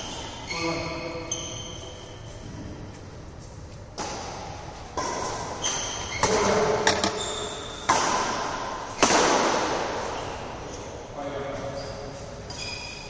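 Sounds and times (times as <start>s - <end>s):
rackets hitting shuttlecock: 3.9s - 10.1s.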